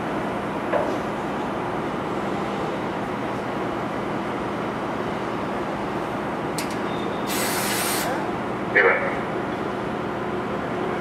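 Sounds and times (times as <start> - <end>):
ferry engines droning: 0.0 - 11.0
short burst of hiss: 7.3 - 8.1.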